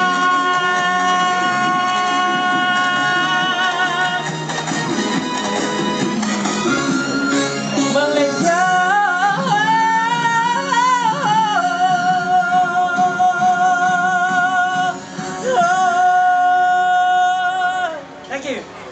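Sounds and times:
man singing: 0.0 - 4.6, 7.8 - 18.1
quiet musical accompaniment: 0.0 - 18.9.

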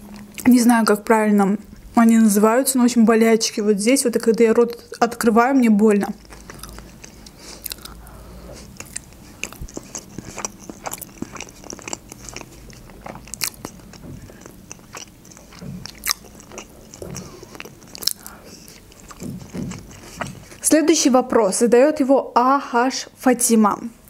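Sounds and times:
chewing with mouth clicks: 4.2 - 5.0, 6.0 - 20.7
biting into food: 8.6 - 20.6.

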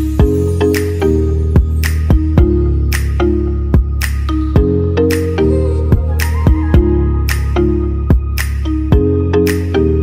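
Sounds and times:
held synth chords: 0.0 - 10.0
electronic kick drum: 1.6 - 2.6, 3.7 - 4.8, 5.9 - 9.2.

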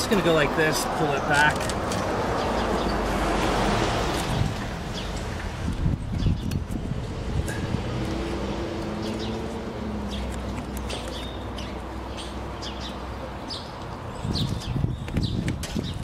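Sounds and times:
birds chirping: 0.0 - 5.4, 8.5 - 16.0.

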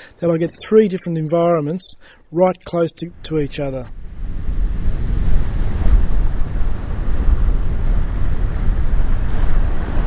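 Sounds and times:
ocean surf on beach: 3.3 - 10.0
wind buffeting microphone: 3.4 - 10.0.

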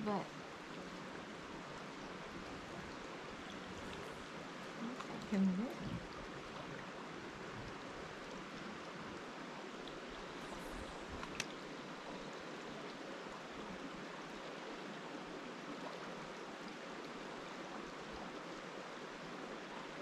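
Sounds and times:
stream rushing: 0.0 - 20.0.

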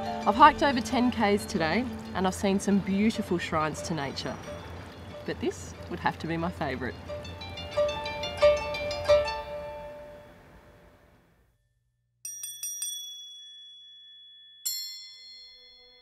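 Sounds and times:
plucked notes: 0.0 - 10.8
high bell-like chimes: 11.6 - 16.0.

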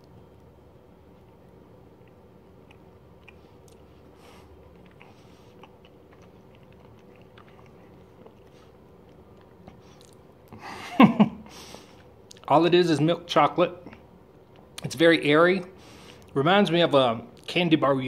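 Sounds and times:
chewing chocolate: 2.0 - 10.6.

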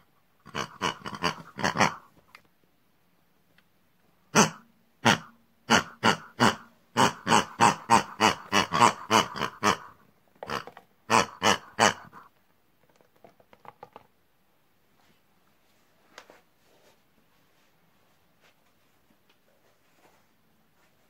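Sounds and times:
pig-like oinks and grunts: 0.4 - 2.1, 4.3 - 12.3.

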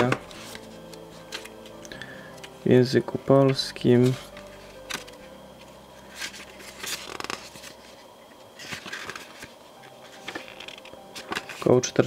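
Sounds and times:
paper pages rustling: 0.0 - 1.8, 6.0 - 11.9.

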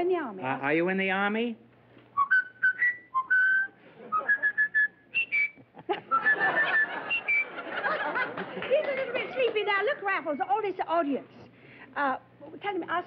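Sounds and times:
audience laughter: 3.8 - 4.7, 5.6 - 9.9.

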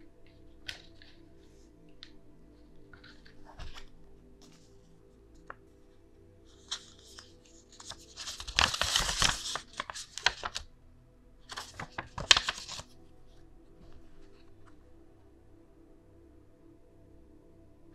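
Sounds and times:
paper leaflet rustling and crinkling: 0.6 - 5.7, 6.5 - 10.7, 11.5 - 12.9.

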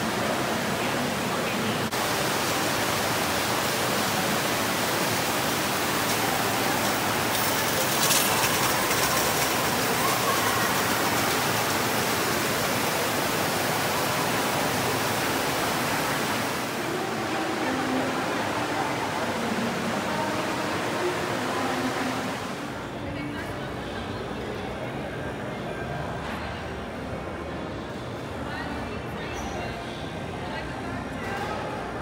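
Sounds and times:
rattle: 6.8 - 12.0.

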